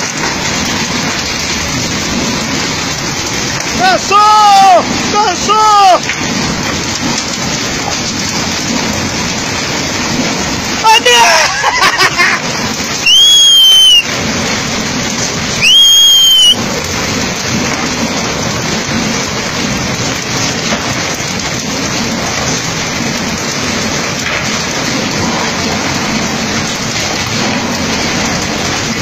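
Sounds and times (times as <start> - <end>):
steady rushing noise: 0.0 - 29.0
loud high whistle: 13.0 - 14.1, 15.6 - 16.6.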